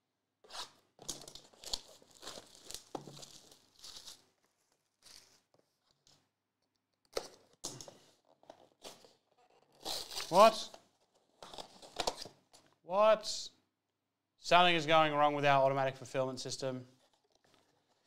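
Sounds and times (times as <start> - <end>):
plastic wrap tearing and crinkling: 0.5 - 5.5, 9.8 - 10.7.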